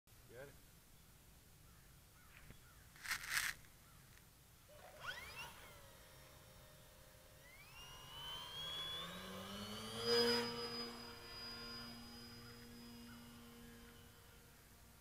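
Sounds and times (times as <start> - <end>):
electric motor and propeller whining: 4.6 - 15.0.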